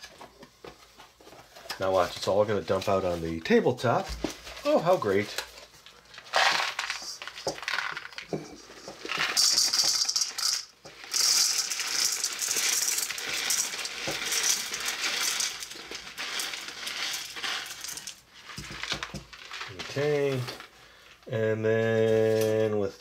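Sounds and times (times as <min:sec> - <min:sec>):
rock salt pouring: 0:06.2 - 0:21.2.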